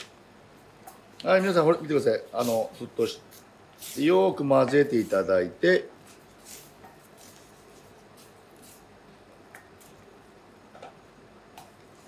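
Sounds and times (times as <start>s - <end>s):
spatula stirring wet mixture: 2.2s - 8.9s.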